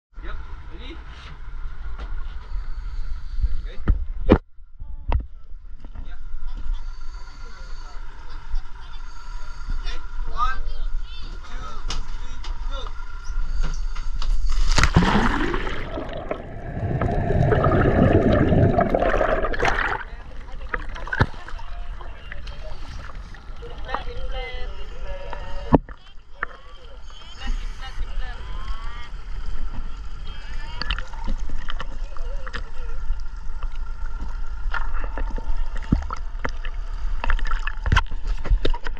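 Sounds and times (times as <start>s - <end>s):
water sloshing and lapping: 14.3s - 26.9s, 28.8s - 38.9s
sharp splash: 14.6s - 20.2s
churning seawater: 14.8s - 24.6s.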